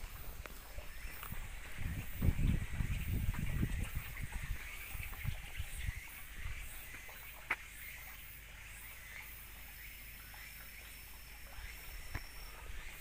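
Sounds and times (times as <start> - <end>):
footsteps on paved path: 0.0 - 8.2
thin high steady whine: 0.0 - 13.0.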